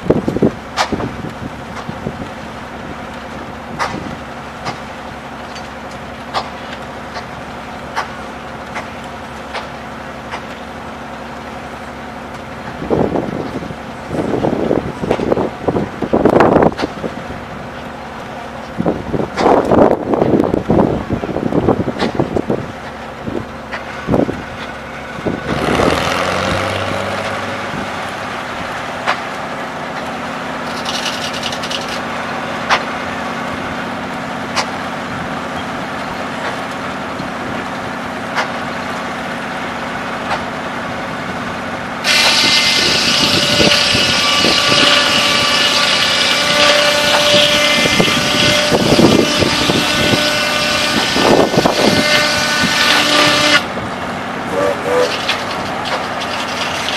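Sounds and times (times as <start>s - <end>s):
sawmill engine drone: 0.0s - 56.9s
saw blade whining through log: 42.0s - 53.8s, 54.5s - 56.9s.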